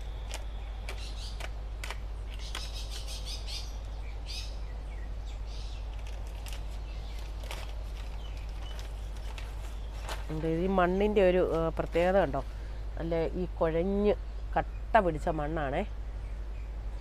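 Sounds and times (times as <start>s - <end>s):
birds chirping: 0.0s - 17.0s
steady low hum: 0.0s - 17.0s
plastic bag crinkling: 5.9s - 10.7s.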